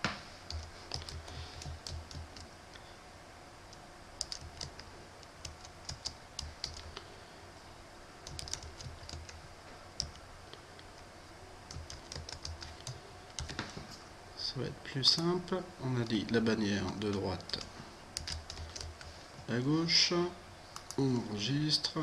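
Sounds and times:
keyboard keys clicking: 0.5 - 2.5, 4.2 - 6.9, 8.2 - 9.4, 11.7 - 13.7, 17.4 - 19.1.

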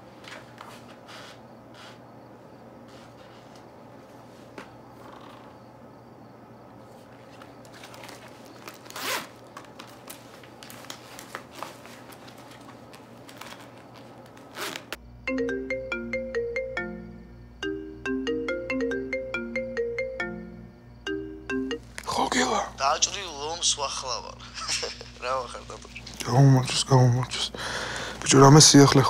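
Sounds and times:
tablet handling scrapes: 0.2 - 2.0
clothing rustling: 6.8 - 15.0
tinkling melody: 15.3 - 21.8.

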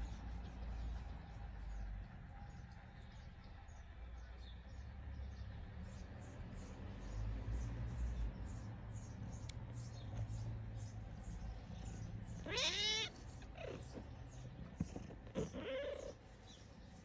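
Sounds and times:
cat meowing: 12.4 - 14.0.

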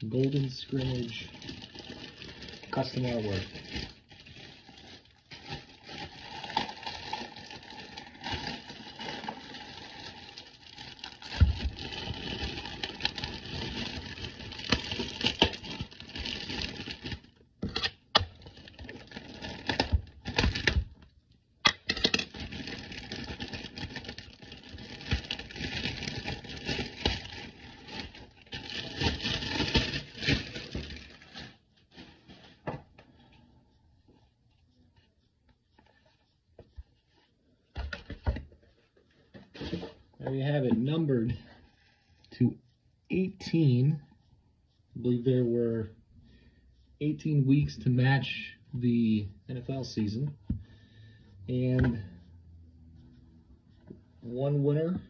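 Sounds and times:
plastic wrap crinkling: 0.0 - 33.3.

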